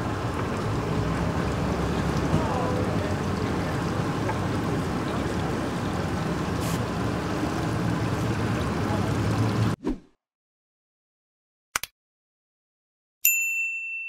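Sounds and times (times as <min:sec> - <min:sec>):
boat engine running: 0:00.0 - 0:09.8
moving water wash: 0:00.0 - 0:09.8.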